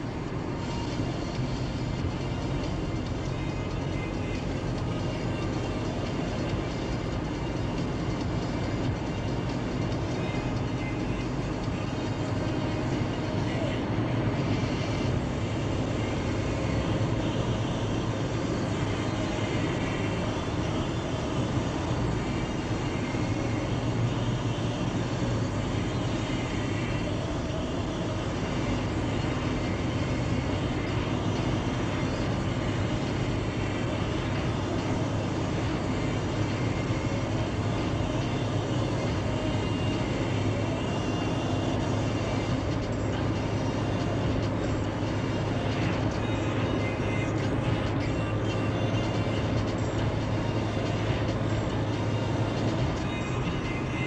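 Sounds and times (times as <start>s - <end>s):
car road and engine noise: 0.0s - 54.0s.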